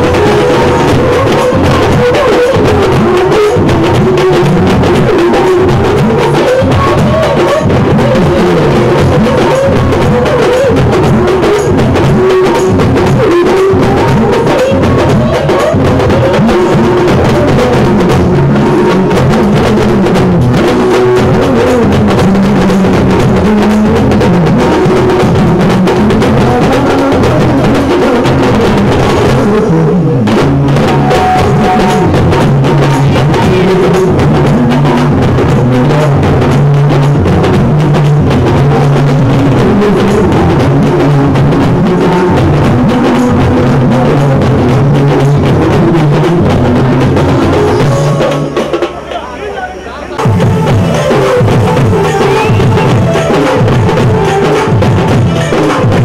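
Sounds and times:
festival music with drums: 0:00.0 - 0:56.0.

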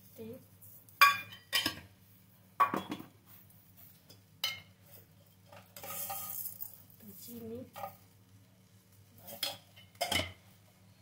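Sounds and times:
metal kitchen utensils clinking: 0:09.2 - 0:10.4.

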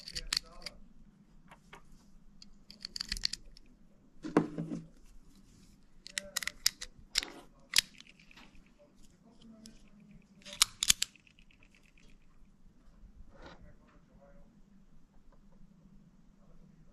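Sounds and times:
cartridges clicking into magazine: 0:10.4 - 0:11.2
magazine clicking into pistol: 0:10.4 - 0:11.2.

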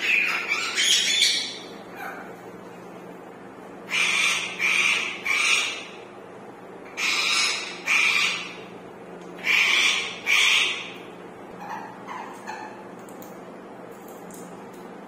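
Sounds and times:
parakeets squawking: 0:00.0 - 0:02.3, 0:03.9 - 0:06.0, 0:06.9 - 0:08.7, 0:09.4 - 0:11.0, 0:11.6 - 0:12.8.

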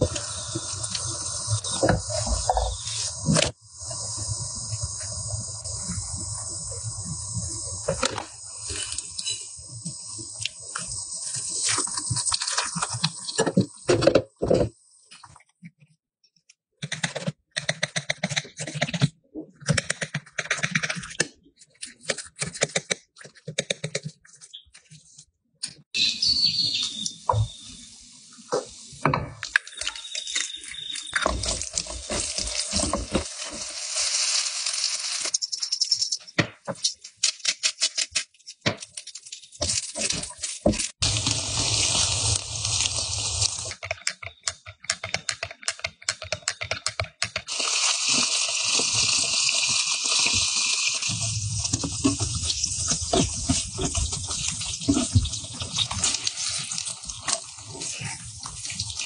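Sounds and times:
food sizzling in oil: 0:00.0 - 0:14.0, 0:29.6 - 0:36.2, 0:39.6 - 0:43.8, 0:47.5 - 0:59.0.

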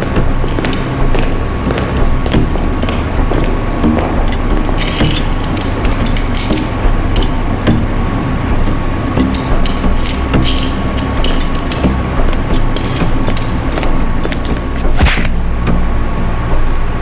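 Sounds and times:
workshop machinery rumbling: 0:00.0 - 0:15.8
constant hum: 0:00.0 - 0:17.0
metallic clanks and taps: 0:02.2 - 0:07.4, 0:09.2 - 0:14.6.

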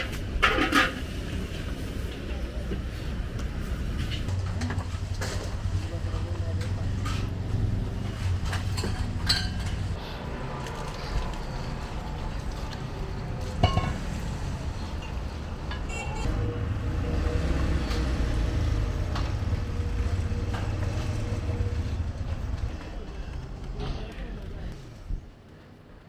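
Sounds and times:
traffic rumble: 0:00.0 - 0:26.0
dishes and utensils clinking: 0:08.4 - 0:09.9, 0:13.4 - 0:14.2.

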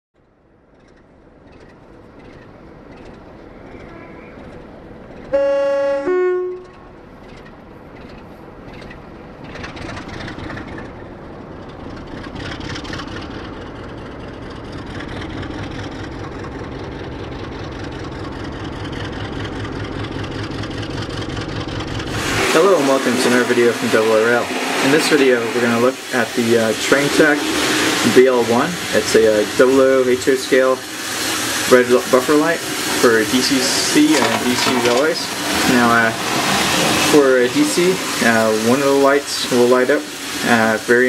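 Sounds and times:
train rumbling on rails: 0:00.2 - 0:41.0
two-note train horn: 0:05.3 - 0:07.0.

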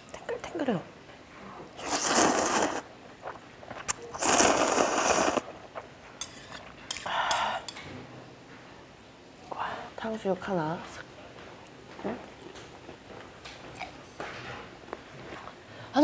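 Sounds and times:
noodles being slurped: 0:01.8 - 0:05.5.

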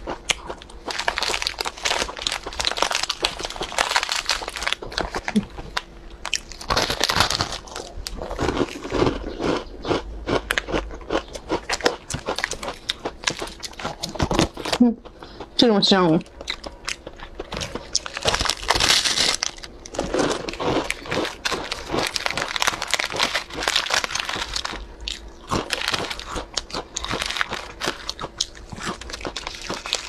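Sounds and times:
crisp chewing crunches: 0:00.0 - 0:15.5, 0:16.2 - 0:30.0
plastic wrapper crinkling: 0:00.9 - 0:08.7, 0:16.6 - 0:30.0.

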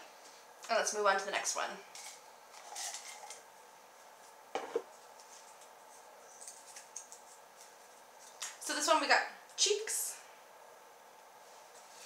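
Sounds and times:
paper crinkling: 0:05.0 - 0:08.4.

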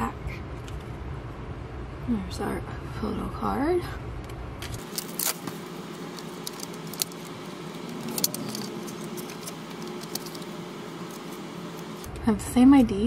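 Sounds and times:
paper rustling: 0:04.6 - 0:12.0.

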